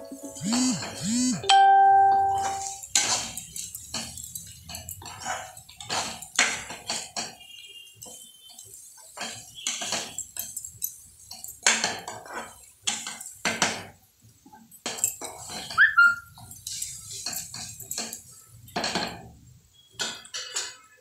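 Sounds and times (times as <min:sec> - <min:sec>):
metal spatula scraping a pan: 0:02.4 - 0:10.5, 0:11.3 - 0:13.3.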